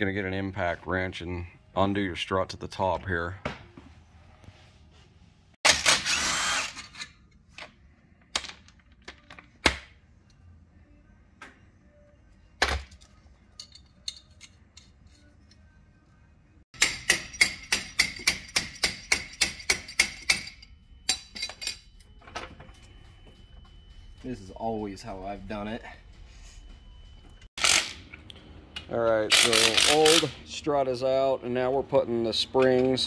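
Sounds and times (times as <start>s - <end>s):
clanks and knocks of metal parts: 16.8s - 22.8s
impact wrench burst: 27.6s - 28.0s, 29.3s - 30.4s.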